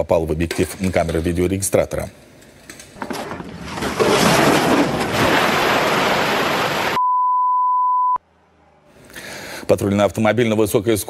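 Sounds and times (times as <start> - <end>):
censor bleep: 7.0 - 8.2.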